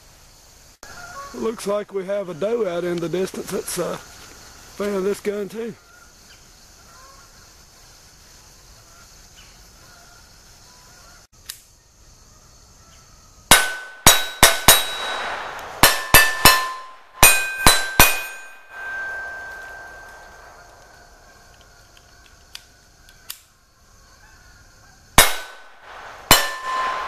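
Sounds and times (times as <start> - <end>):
insect chirring: 0.0 - 27.0
pistol shots: 13.5 - 19.3, 25.2 - 27.0
steel plates ringing: 13.5 - 21.8, 25.2 - 27.0.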